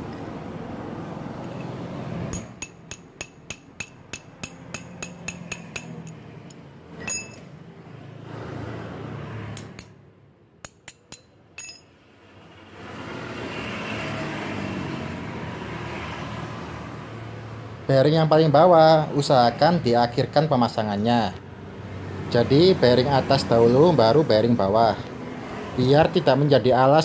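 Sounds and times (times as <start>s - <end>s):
metal tapping on metal: 2.3s - 7.5s, 10.6s - 11.9s.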